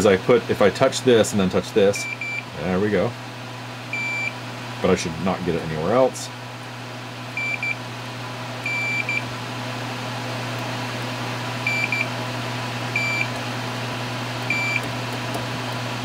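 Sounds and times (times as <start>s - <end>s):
multimeter short beeps: 14.5s - 14.8s.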